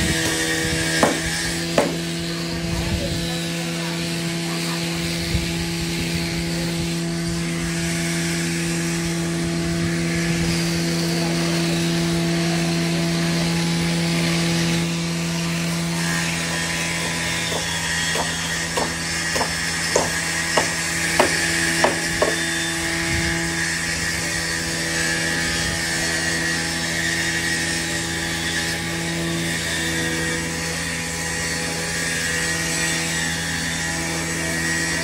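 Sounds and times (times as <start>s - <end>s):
power tools cutting timber: 0.0s - 35.0s
sharp knocks: 1.0s - 2.1s, 17.0s - 22.4s.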